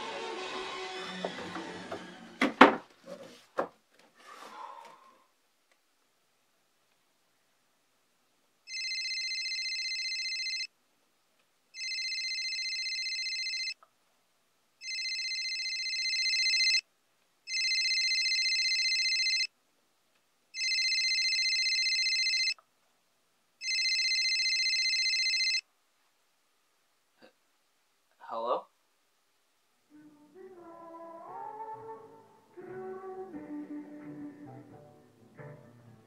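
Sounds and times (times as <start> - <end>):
smartphone electronic ringtone: 8.7 - 10.7, 11.8 - 13.8, 14.8 - 16.8, 17.5 - 19.5, 20.6 - 22.6, 23.6 - 25.6.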